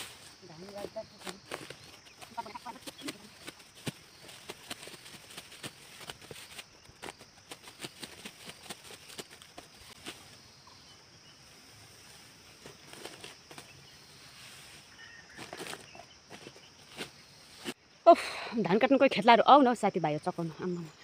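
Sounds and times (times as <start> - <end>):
sickle cutting rice stalks: 0.0 - 10.4, 11.4 - 17.8.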